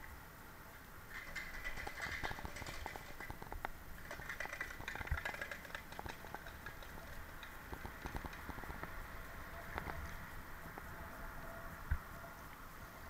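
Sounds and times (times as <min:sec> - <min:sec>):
irregular clicks and scrapes: 0:01.1 - 0:08.9.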